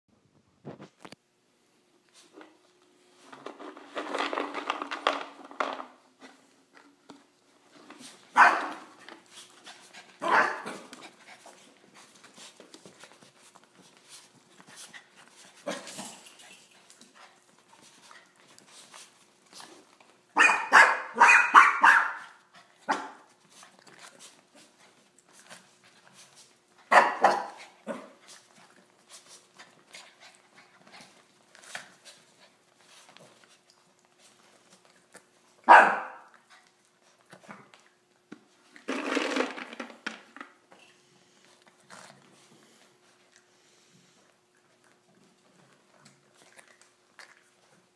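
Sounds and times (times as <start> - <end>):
puppy yapping: 8.4 - 8.9, 10.2 - 10.9, 20.4 - 23.3, 35.7 - 36.3.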